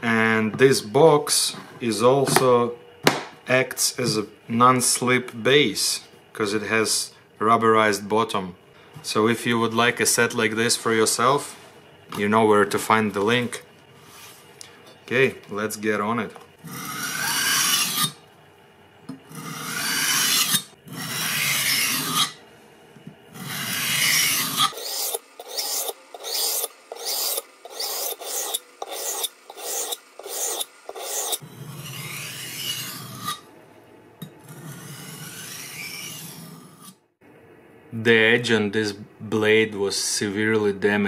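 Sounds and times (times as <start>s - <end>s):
knife scraping on a whetstone: 16.7s - 18.2s, 19.3s - 22.4s, 23.4s - 33.4s, 34.4s - 37.0s.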